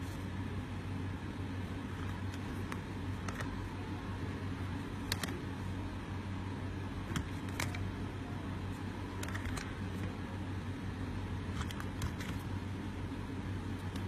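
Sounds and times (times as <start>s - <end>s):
steady low hum: 0.0s - 14.0s
plastic phone cases clicking: 9.2s - 9.7s.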